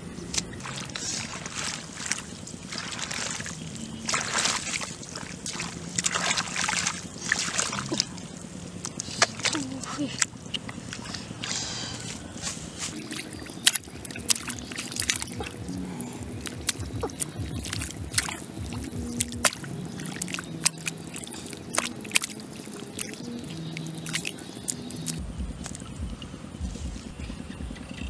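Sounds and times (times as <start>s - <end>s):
hands splashing in muddy water: 0.2s - 25.8s.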